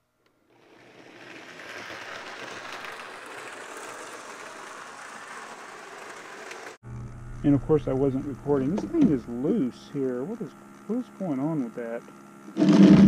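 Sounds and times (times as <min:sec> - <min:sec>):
model train motor whirring: 0:00.2 - 0:06.8.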